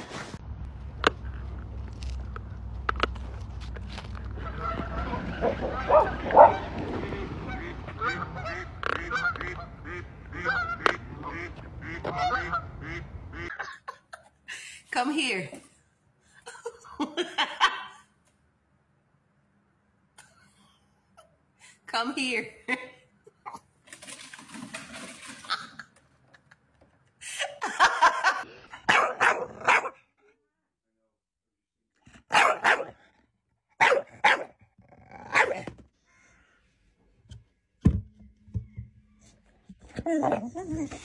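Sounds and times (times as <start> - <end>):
geese honking: 4.2 - 13.5.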